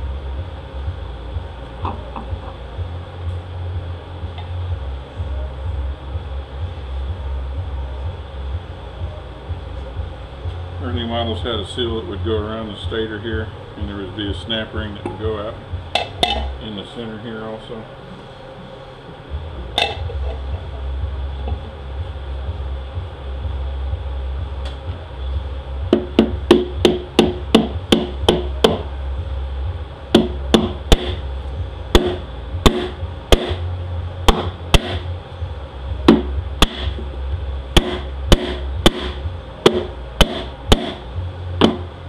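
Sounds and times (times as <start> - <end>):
steady low hum: 0.0 - 42.0
mallet knocking on metal: 25.9 - 28.9, 30.1 - 31.2, 32.0 - 33.6, 34.2 - 35.0, 36.1 - 37.0, 37.8 - 41.0, 41.6 - 41.9.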